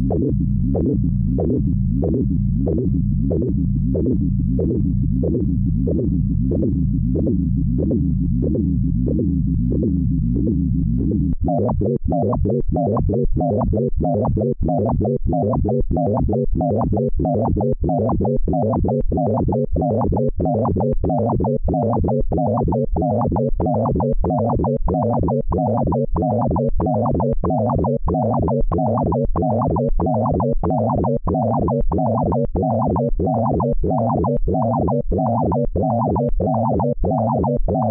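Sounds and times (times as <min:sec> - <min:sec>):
fast pulsing synth tones: 0:10.4 - 0:37.9.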